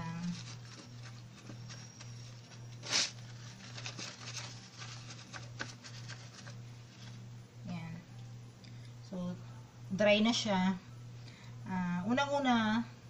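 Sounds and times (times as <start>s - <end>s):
paper towel rustling: 0.0s - 7.2s
steady low hum: 0.0s - 13.0s.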